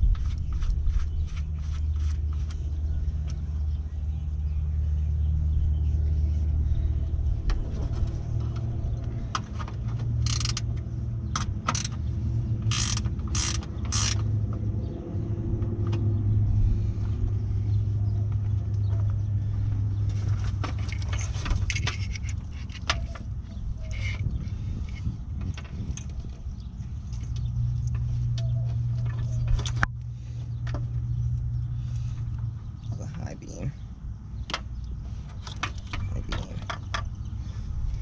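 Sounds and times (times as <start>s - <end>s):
steady low rumble: 0.0s - 38.0s
wiring harness rustling and ticking: 7.6s - 10.9s, 19.6s - 31.4s.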